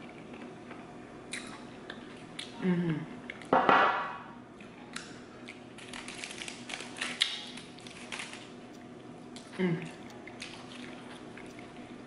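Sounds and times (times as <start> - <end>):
chewing: 4.6 - 12.0
aluminium foil crinkling: 5.7 - 12.0.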